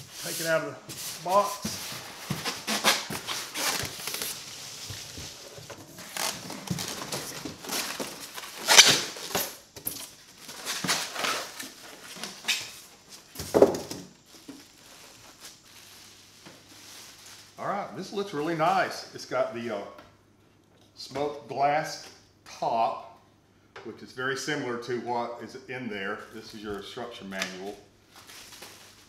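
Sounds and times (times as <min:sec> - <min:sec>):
styrofoam rubbing: 0:00.0 - 0:09.2
cardboard flaps shifting: 0:01.0 - 0:09.6
plastic wrap crinkling: 0:01.2 - 0:13.4, 0:14.1 - 0:18.4, 0:26.2 - 0:29.0.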